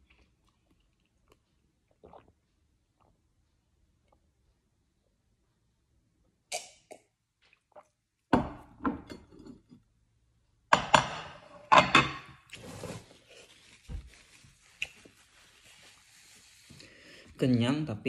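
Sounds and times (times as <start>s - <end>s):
ceramic plates clinking: 10.8s - 12.4s
paper tissue rustling: 12.6s - 17.2s.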